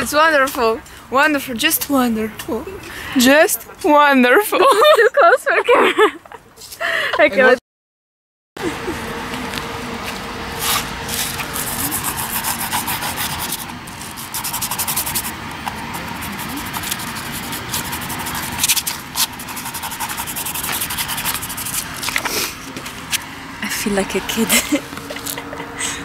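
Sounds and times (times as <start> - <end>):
hands rubbing on paper: 10.6 - 22.6.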